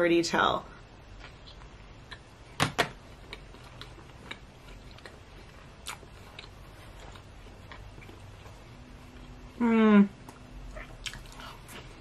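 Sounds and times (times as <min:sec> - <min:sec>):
person chewing with mouth clicks: 0:03.2 - 0:09.6, 0:10.2 - 0:12.0.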